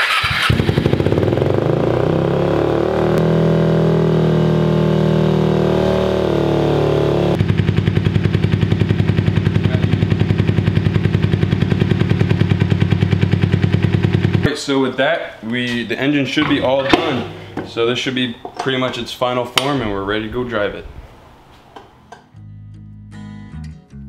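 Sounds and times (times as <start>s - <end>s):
motorcycle engine idling: 6.7s - 14.4s.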